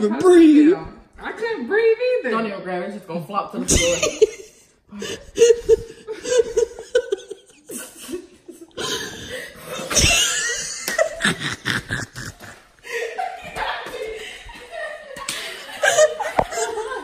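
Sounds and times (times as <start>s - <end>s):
women laughing: 3.7s - 17.0s.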